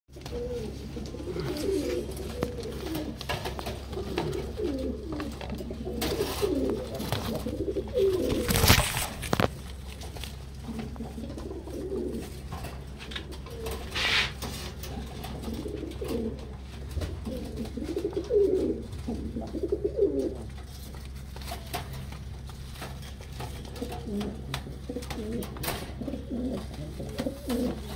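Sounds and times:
pigeons cooing: 0.1s - 27.9s
brief rustle: 8.2s - 10.4s.

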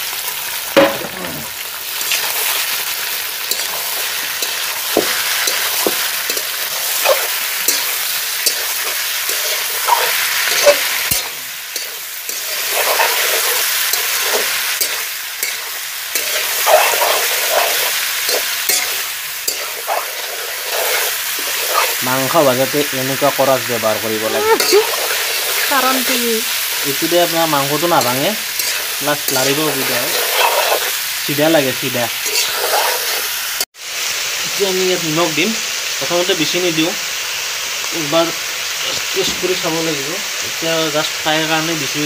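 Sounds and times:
meat sizzling in hot oil: 0.0s - 42.0s
spatula scraping pan: 3.5s - 22.6s, 24.3s - 31.1s, 32.2s - 33.3s.

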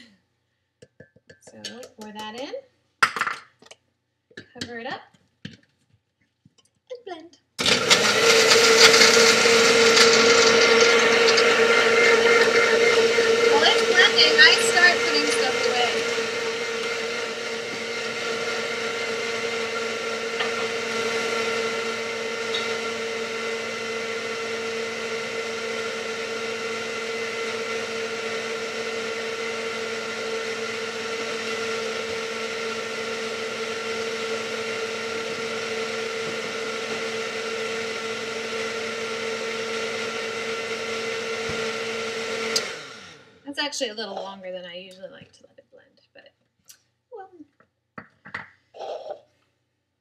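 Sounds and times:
blender motor running: 7.6s - 44.4s, 48.8s - 49.2s.

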